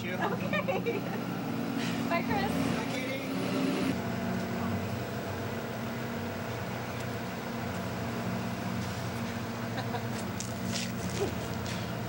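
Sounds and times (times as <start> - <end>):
bus engine idling: 0.0 - 12.0
street traffic noise: 0.0 - 12.0.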